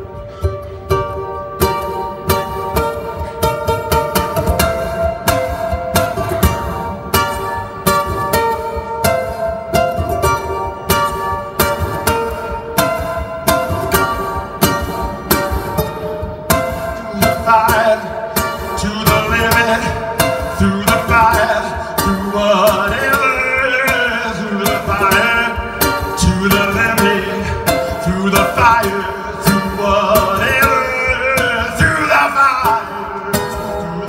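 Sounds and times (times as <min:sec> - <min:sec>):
ukulele strumming: 0:00.0 - 0:34.0
person singing: 0:16.8 - 0:34.0.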